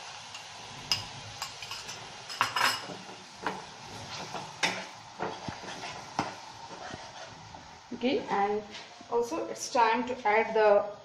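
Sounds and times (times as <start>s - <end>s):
metal spatula scraping steel pan: 4.0s - 7.4s.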